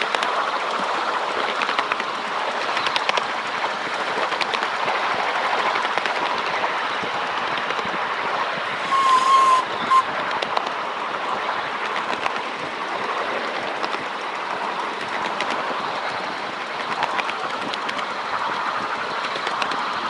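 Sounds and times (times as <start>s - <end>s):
rail joint clicks: 0.0s - 3.3s, 8.8s - 20.0s
train wheels rumbling on rail: 0.0s - 20.0s
train whistle toots: 8.8s - 10.1s.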